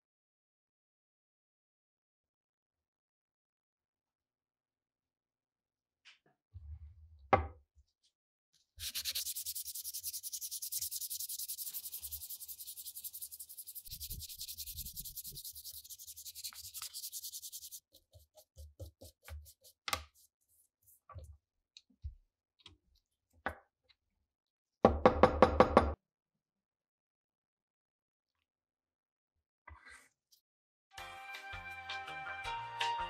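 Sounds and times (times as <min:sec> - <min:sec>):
sandpaper sanding wood: 0:08.8 - 0:20.4.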